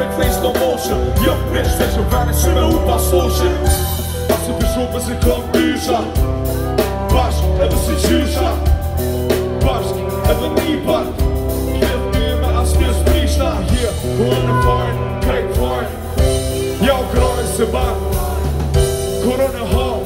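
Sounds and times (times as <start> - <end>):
drum kit beat: 0.0 - 20.0
guitar and keyboards: 0.0 - 20.0
heavy bass: 0.0 - 20.0
lead vocalist singing: 0.0 - 20.0.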